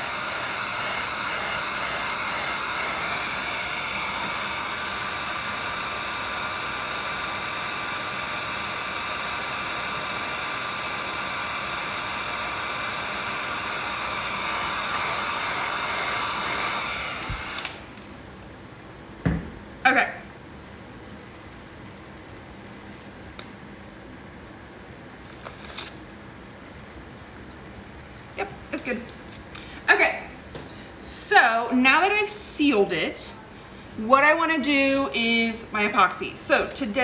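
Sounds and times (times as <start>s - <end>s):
heat gun blowing air: 0.0s - 18.0s.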